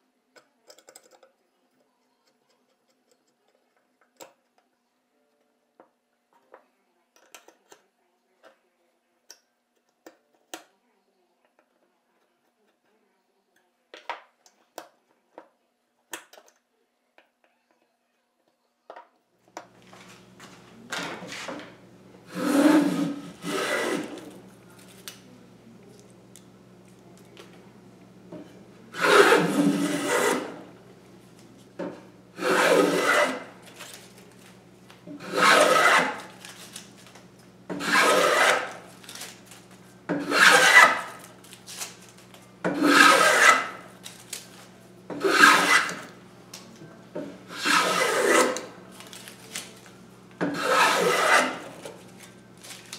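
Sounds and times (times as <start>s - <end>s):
hand plane planing wood: 22.3s - 24.4s, 29.0s - 30.7s, 32.4s - 33.6s, 35.2s - 36.4s, 37.7s - 38.9s, 40.2s - 41.2s, 42.7s - 43.8s, 45.1s - 46.1s, 47.5s - 48.7s, 50.4s - 51.9s.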